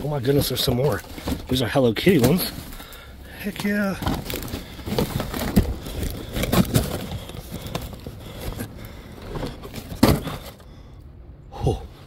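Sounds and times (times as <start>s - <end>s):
cardboard rustling and scraping: 0.0s - 10.6s
knocks of tins in a box: 9.3s - 10.6s.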